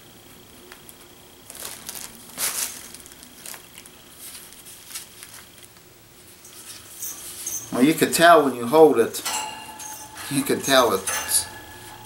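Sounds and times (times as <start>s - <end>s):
plastic bag crinkling: 0.7s - 8.0s.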